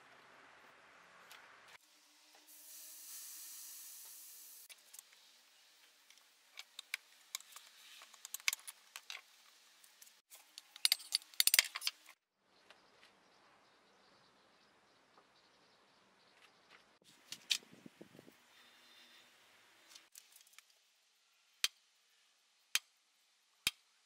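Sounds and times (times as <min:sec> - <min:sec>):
air hissing from tyre valve: 0:02.5 - 0:04.7.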